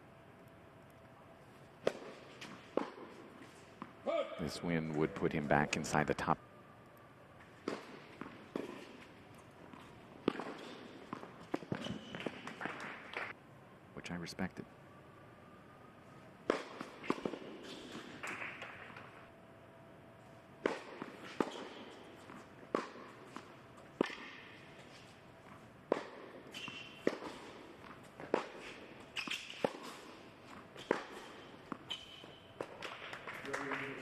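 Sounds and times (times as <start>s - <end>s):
tennis ball struck by rackets: 1.8s - 3.9s, 7.5s - 13.3s, 16.4s - 19.0s, 20.6s - 24.6s, 25.9s - 33.2s
sneaker squeaks: 9.7s - 13.3s, 16.5s - 18.8s, 20.8s - 23.4s, 26.0s - 33.1s.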